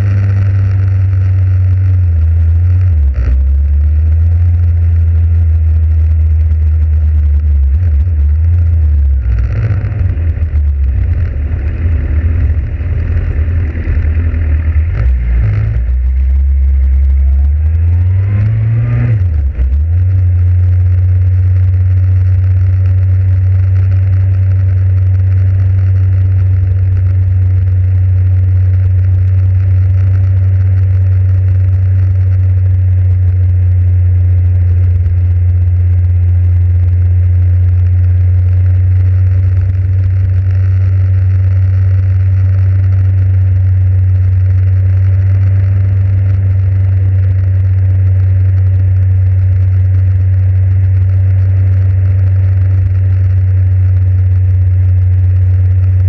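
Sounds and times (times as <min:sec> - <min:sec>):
wind and road noise: 0:00.0 - 0:28.0
motorcycle engine running: 0:00.0 - 0:56.0.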